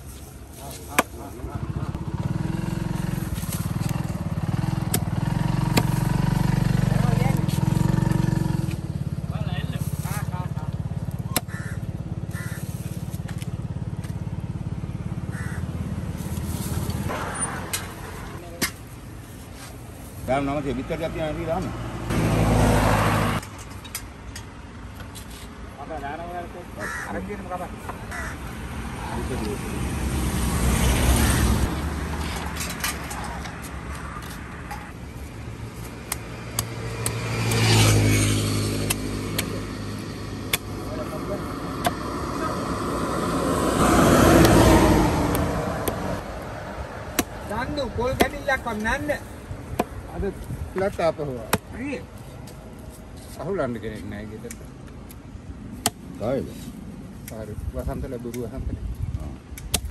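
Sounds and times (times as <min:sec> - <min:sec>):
vehicle passing: 0:01.2 - 0:12.5, 0:20.3 - 0:23.4, 0:25.9 - 0:52.9.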